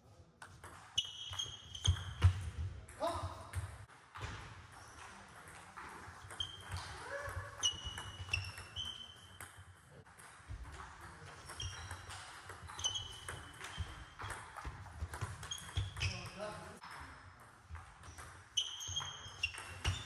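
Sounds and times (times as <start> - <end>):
shoes squeaking on floor: 1.0 - 2.5, 6.2 - 9.4, 11.4 - 16.6, 18.1 - 20.0
table tennis balls clicking: 4.7 - 20.0.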